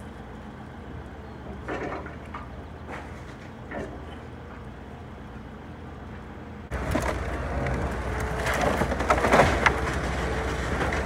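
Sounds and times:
excavator diesel engine running: 0:00.0 - 0:11.0
wood cracking and splintering: 0:06.7 - 0:11.0.

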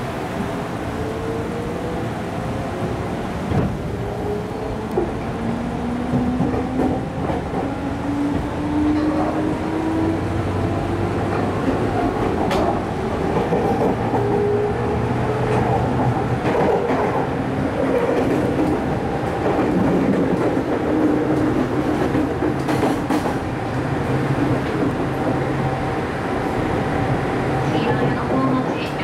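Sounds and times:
rail joint clicks: 0:04.6 - 0:09.4, 0:11.2 - 0:25.5.

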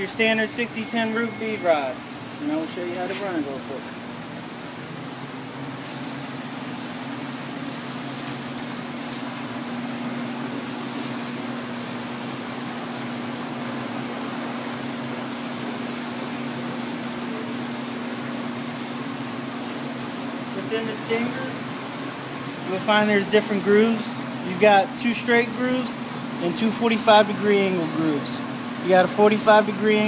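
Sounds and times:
fan hum: 0:00.0 - 0:30.0.

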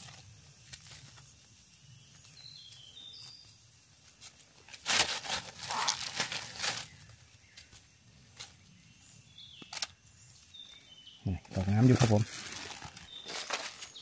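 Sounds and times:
dry leaves crackling and rustling: 0:04.1 - 0:08.6, 0:11.4 - 0:14.0.

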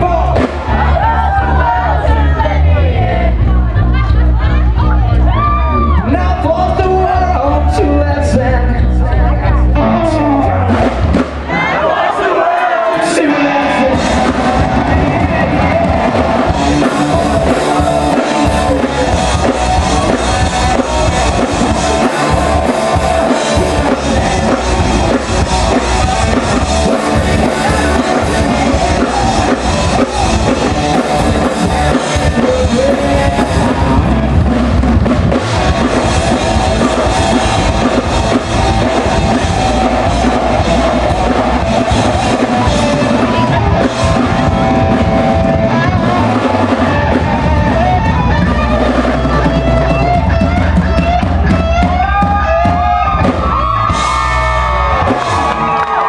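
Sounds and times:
drum kit: 0:00.0 - 0:09.0, 0:09.6 - 0:12.1, 0:13.0 - 0:56.0
electric bass: 0:00.0 - 0:12.0, 0:13.0 - 0:56.0
electric guitar: 0:13.1 - 0:56.0.

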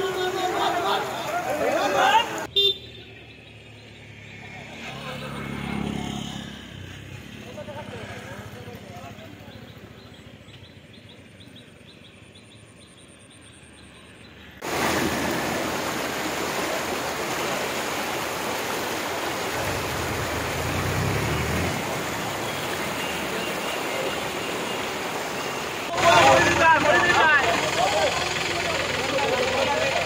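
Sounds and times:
floodwater rushing: 0:00.0 - 0:02.5, 0:14.6 - 0:30.0.

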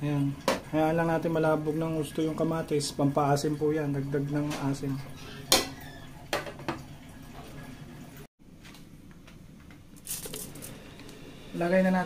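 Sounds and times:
packet crinkling: 0:10.0 - 0:10.7.

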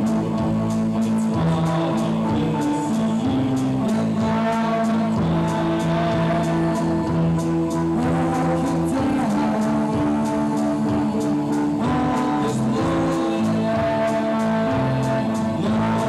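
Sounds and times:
synthesizer chords: 0:00.0 - 0:16.0
ticking beat: 0:00.0 - 0:16.0.

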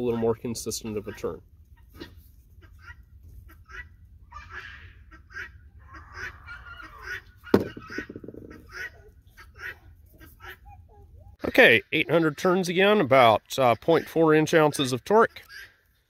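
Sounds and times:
geese honking: 0:00.0 - 0:10.6.

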